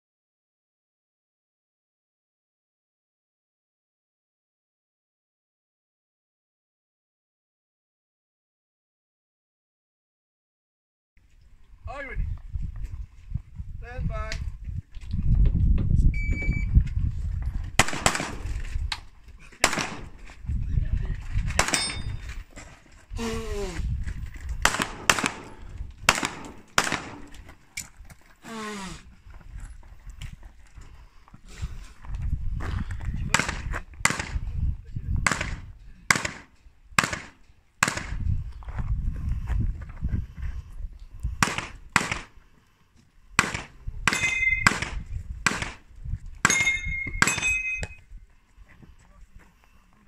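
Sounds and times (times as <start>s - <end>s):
pistol shots: 17.8s - 18.6s, 19.6s - 20.3s, 21.6s - 22.2s, 24.6s - 27.5s, 33.3s - 34.4s, 35.2s - 38.2s, 41.4s - 42.3s, 43.4s - 45.8s
steel targets ringing: 21.6s - 22.2s, 44.1s - 44.7s, 46.5s - 48.0s.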